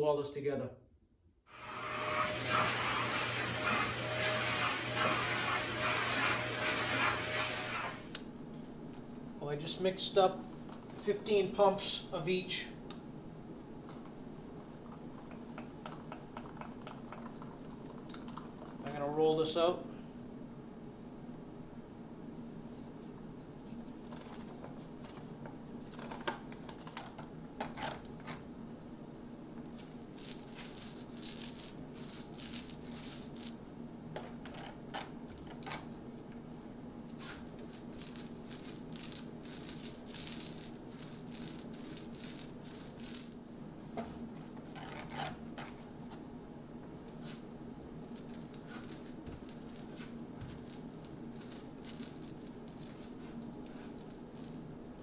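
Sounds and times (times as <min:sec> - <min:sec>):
paint roller crackling stickily: 0:29.8 - 0:33.6, 0:37.2 - 0:43.4, 0:48.1 - 0:53.1.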